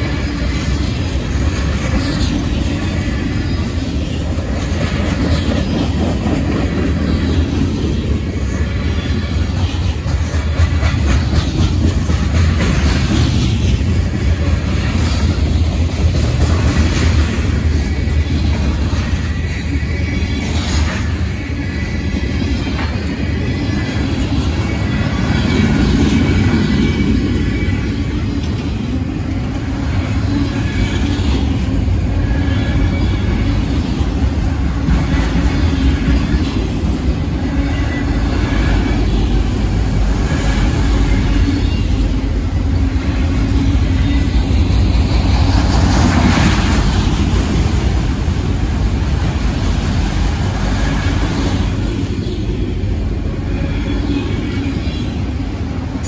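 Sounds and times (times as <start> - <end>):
train wheels rumbling on rail: 0.0 - 56.0
high wheel squeals: 30.1 - 33.8.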